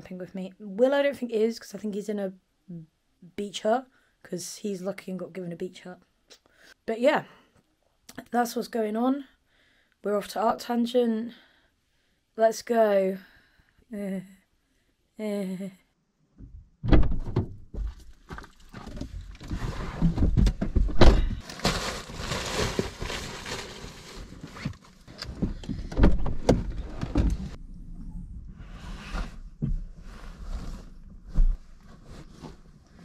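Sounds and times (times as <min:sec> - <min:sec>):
thumps and knocks: 0:16.4 - 0:21.4, 0:24.5 - 0:27.6
rustling of fabric and plastic: 0:21.4 - 0:27.5.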